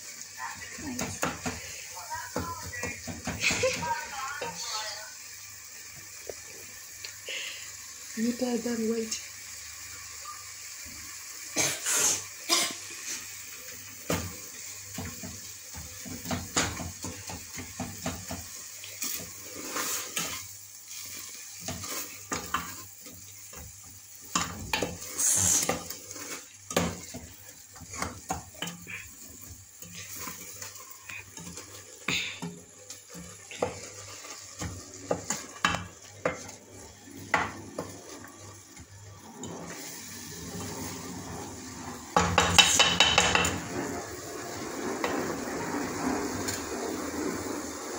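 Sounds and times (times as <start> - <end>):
wooden spoon scraping metal pot: 15.2 - 47.5.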